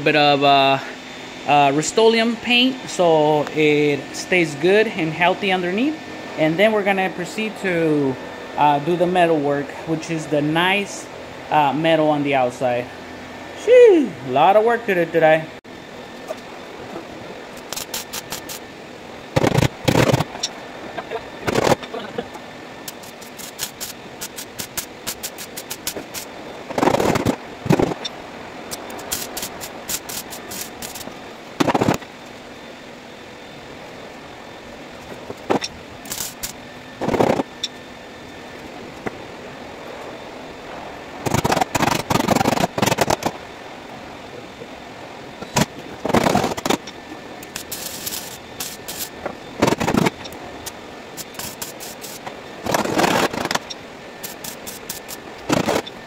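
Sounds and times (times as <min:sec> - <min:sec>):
welder crackling bursts: 0:17.5 - 0:18.7, 0:19.3 - 0:32.1, 0:35.0 - 0:37.7, 0:41.2 - 0:43.4, 0:45.4 - 0:55.9.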